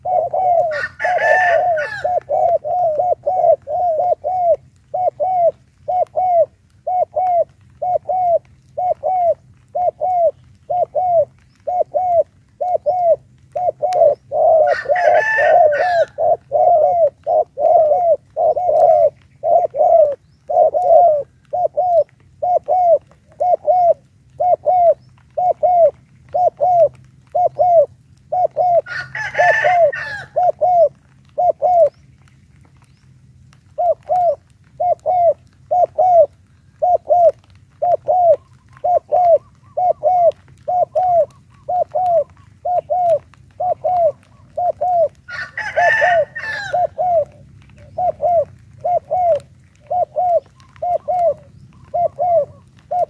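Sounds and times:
doves cooing: 0:00.0 - 0:53.0
rooster crowing: 0:00.6 - 0:02.4, 0:14.6 - 0:16.4, 0:28.8 - 0:30.4, 0:45.3 - 0:47.2.

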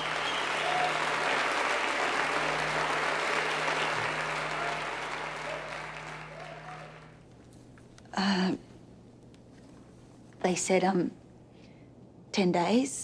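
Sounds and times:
crowd applause: 0:00.0 - 0:07.2.

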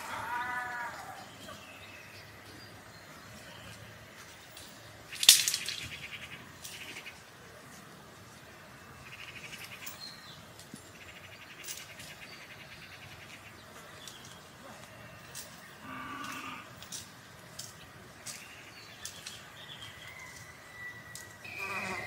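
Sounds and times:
insects trilling: 0:21.1 - 0:22.0.

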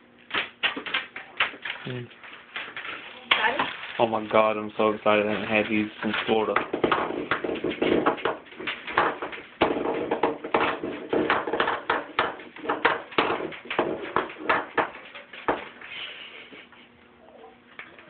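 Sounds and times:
taps and knocks: 0:05.2 - 0:15.8.

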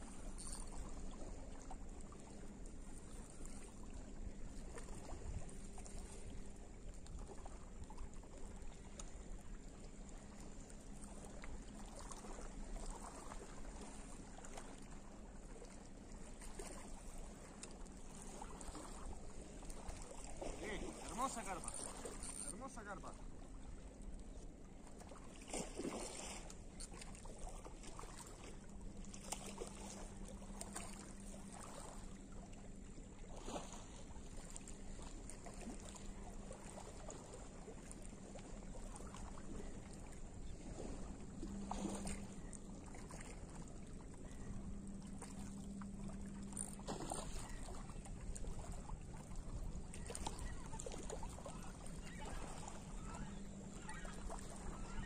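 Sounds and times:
fishing reel cranking hum: 0:00.0 - 0:01.2, 0:21.0 - 0:22.8, 0:46.1 - 0:47.9
water lapping at shore: 0:00.0 - 0:55.0.

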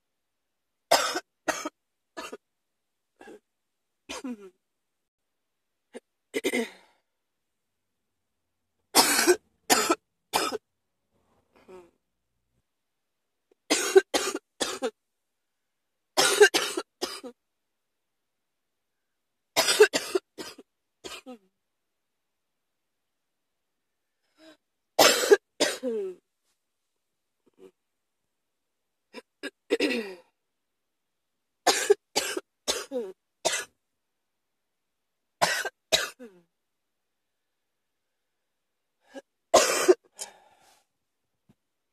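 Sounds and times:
person coughing: 0:00.9 - 0:02.4, 0:04.1 - 0:04.5, 0:06.4 - 0:06.9, 0:09.0 - 0:10.6, 0:13.7 - 0:14.9, 0:16.2 - 0:17.4, 0:19.6 - 0:21.4, 0:25.0 - 0:26.2, 0:29.2 - 0:30.3, 0:31.7 - 0:33.7, 0:35.4 - 0:36.4, 0:39.1 - 0:40.4.

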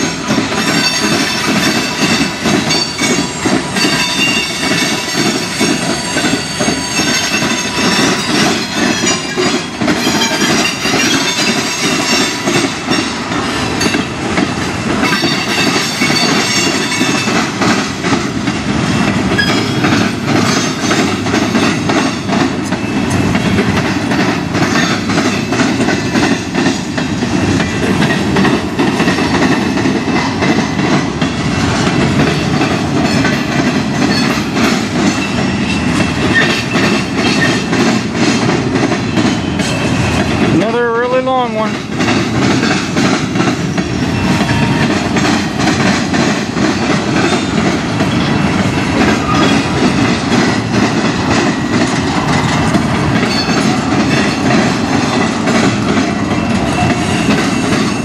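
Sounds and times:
freight train wheels rumbling: 0:00.0 - 0:58.0
wheels clacking over rail joints: 0:00.0 - 0:58.0.

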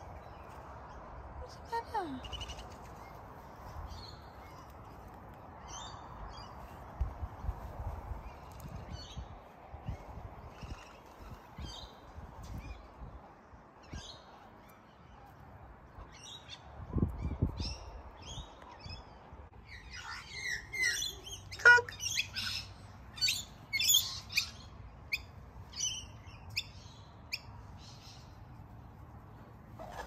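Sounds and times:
birds chirping and squawking: 0:19.7 - 0:27.1.

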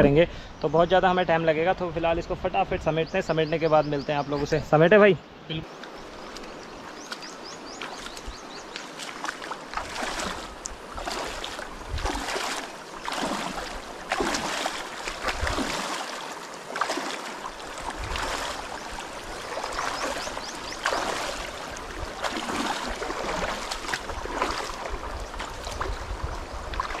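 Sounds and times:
water sloshing with footsteps: 0:05.7 - 0:27.0.

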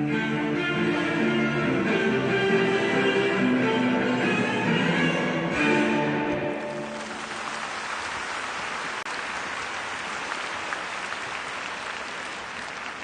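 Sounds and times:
crowd applauding: 0:06.6 - 0:13.0.

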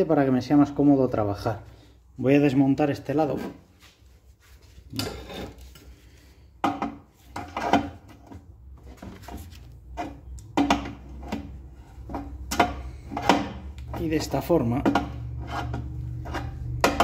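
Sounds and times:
knocks and clatter of hard parts: 0:10.0 - 0:15.9.

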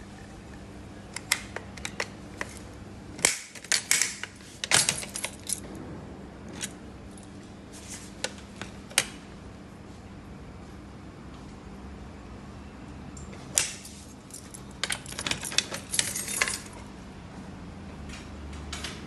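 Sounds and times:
keys jangling: 0:04.6 - 0:05.6, 0:13.7 - 0:16.8.

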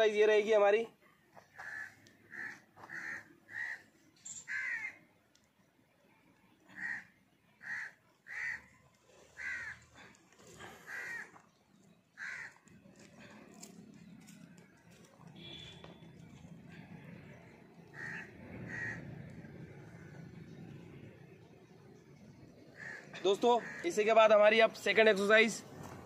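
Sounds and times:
crow cawing: 0:01.5 - 0:03.9, 0:04.5 - 0:05.0, 0:06.7 - 0:08.7, 0:09.4 - 0:10.1, 0:10.7 - 0:11.4, 0:12.2 - 0:12.7, 0:17.9 - 0:19.1, 0:22.7 - 0:24.0.

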